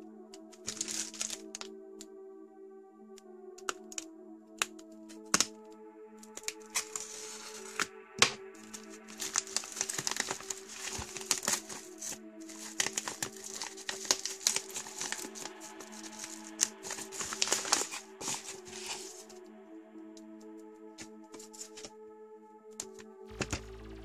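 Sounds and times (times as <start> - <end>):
background music: 0.0 - 24.0
paper crinkling and tearing: 0.6 - 1.6, 6.4 - 19.3.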